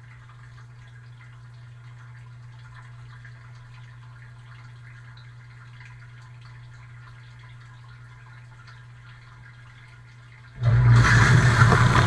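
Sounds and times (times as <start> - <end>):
water drips and patters: 0.0 - 12.0
dishwasher pump humming: 8.9 - 12.0.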